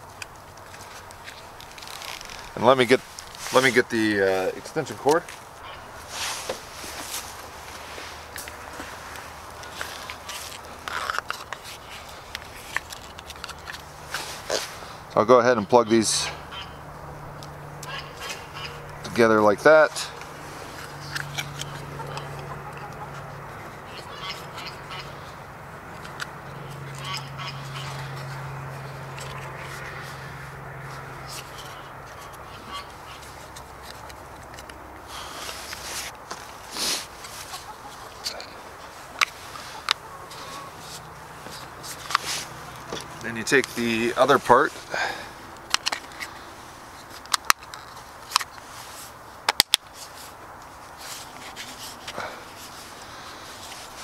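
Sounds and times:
poultry calling: 5.5s - 11.2s, 15.7s - 34.2s, 36.7s - 46.6s.

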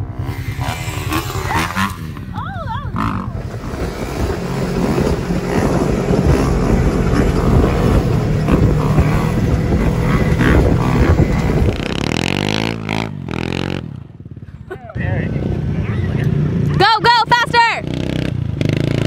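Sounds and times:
dirt bike engine droning: 0.0s - 19.0s
dirt bike revving: 0.0s - 19.0s.

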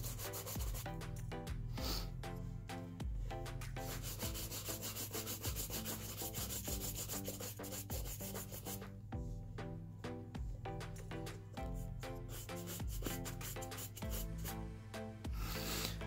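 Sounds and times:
brush scratching on leather shoes: 0.0s - 0.8s, 3.8s - 8.8s, 12.3s - 14.5s.

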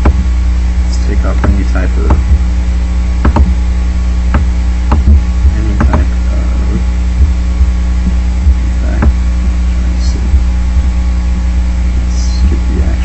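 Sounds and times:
electrical hum with hiss: 0.0s - 13.0s
sharp clicks: 1.4s - 2.4s, 3.2s - 3.6s, 4.3s - 5.2s, 5.8s - 6.1s.

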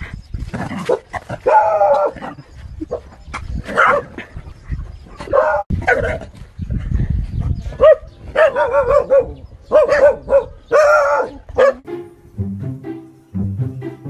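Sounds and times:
dog barking: 3.8s - 4.1s, 7.8s - 11.9s
background music with low notes: 11.8s - 14.0s.

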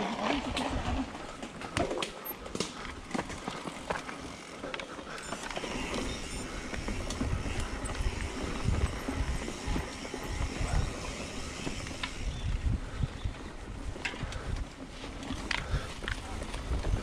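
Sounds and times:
wind rumble on microphone: 6.3s - 17.0s.

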